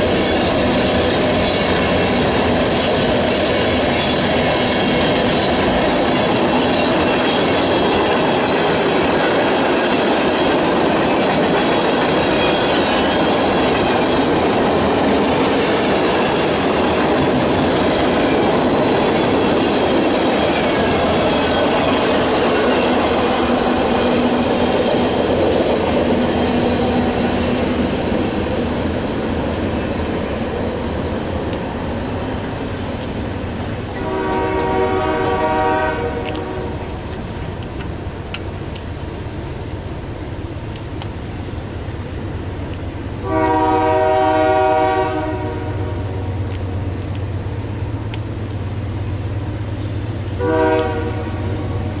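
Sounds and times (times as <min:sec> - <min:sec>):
freight train wheels clattering: 0:00.0 - 0:52.0
train horn chord: 0:34.0 - 0:36.8, 0:43.2 - 0:46.0, 0:50.4 - 0:51.7.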